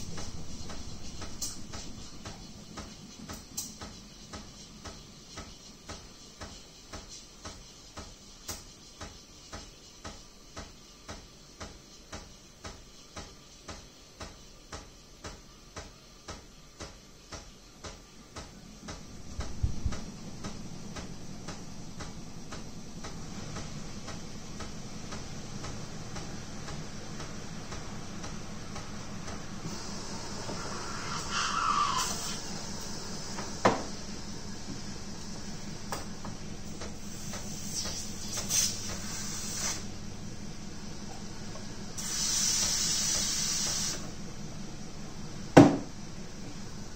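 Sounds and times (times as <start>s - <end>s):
pump humming: 29.0s - 36.7s.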